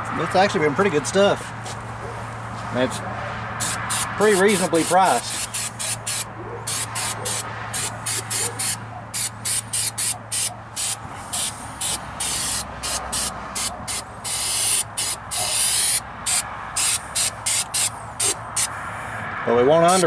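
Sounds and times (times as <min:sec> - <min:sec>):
aerosol can spraying: 0:03.6 - 0:18.7.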